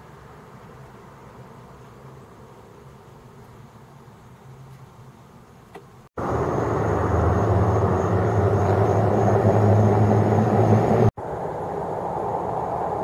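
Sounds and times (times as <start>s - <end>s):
engine hum: 4.4s - 13.0s.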